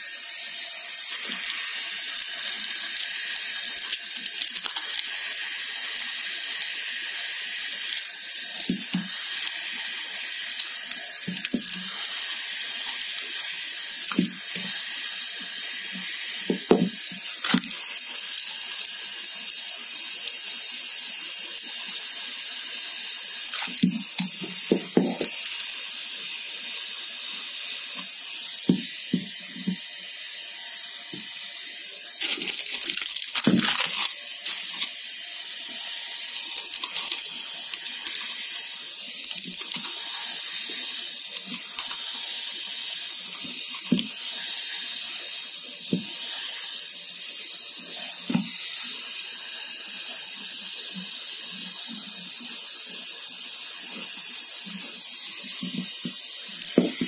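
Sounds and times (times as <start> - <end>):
plastic film crinkling: 1.1 - 6.7, 7.6 - 9.9, 10.5 - 13.3, 15.9 - 17.8, 32.2 - 35.0, 36.3 - 38.6, 39.2 - 42.1, 43.2 - 44.1.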